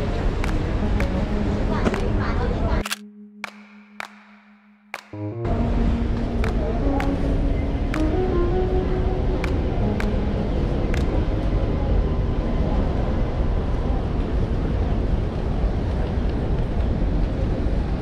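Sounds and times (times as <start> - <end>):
traffic rumble on wet street: 0.0 - 2.8, 9.3 - 18.0
sharp clicks: 2.8 - 5.2.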